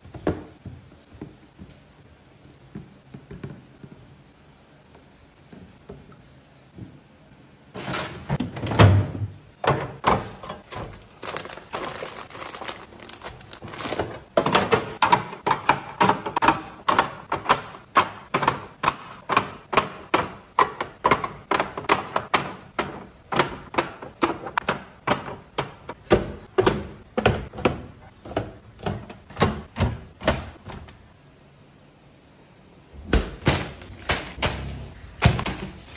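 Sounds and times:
rustling: 10.6s - 14.3s.

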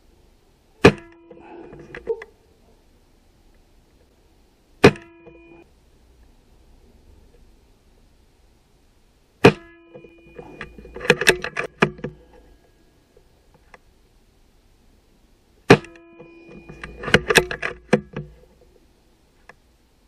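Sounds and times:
air rifle shot with ringing: 0.8s - 1.5s, 4.8s - 5.4s, 9.4s - 12.2s, 15.7s - 18.0s.

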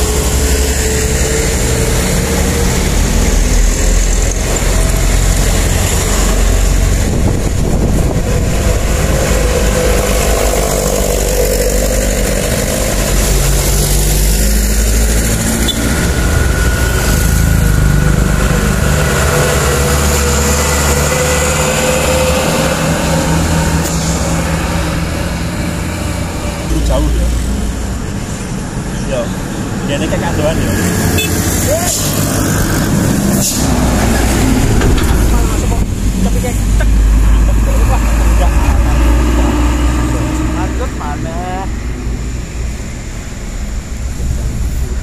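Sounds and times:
motorcycle passing: 0.0s - 28.2s
truck diesel engines under load: 0.0s - 45.0s
tyres hissing on road: 0.0s - 45.0s.

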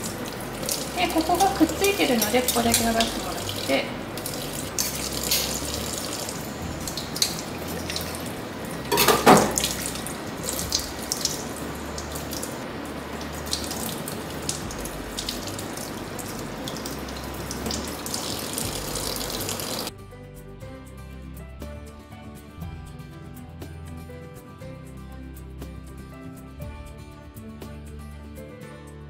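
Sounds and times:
small clicks and splashes: 0.0s - 8.3s
tap water running into sink: 0.0s - 19.9s.

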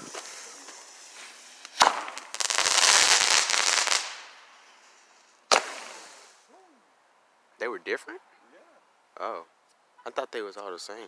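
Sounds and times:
firecracker bang: 0.0s - 4.4s, 5.5s - 6.4s
firecrackers crackling pops: 0.0s - 6.5s.

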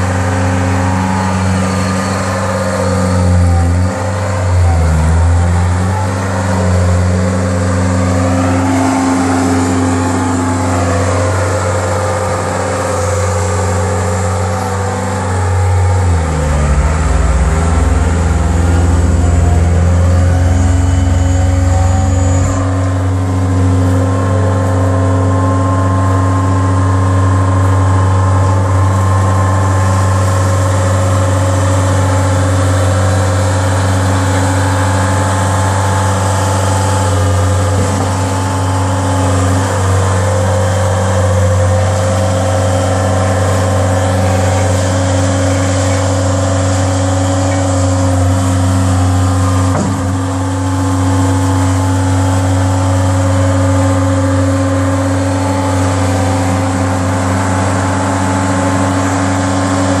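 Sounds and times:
roller diesel engine running: 0.0s - 60.0s.

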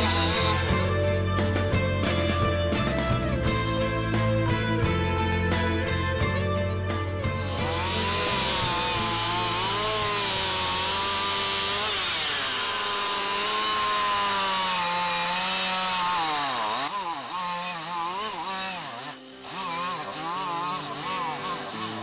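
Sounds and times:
chainsaw cutting log: 0.0s - 2.4s, 7.3s - 22.0s.

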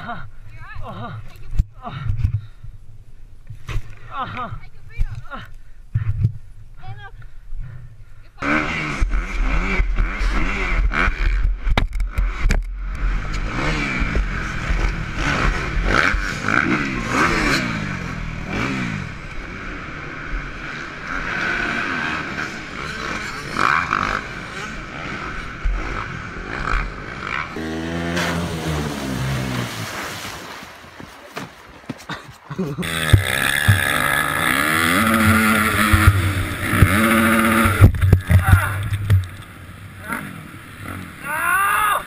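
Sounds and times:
dirt bike engines revving: 8.4s - 30.4s, 32.0s - 42.0s.

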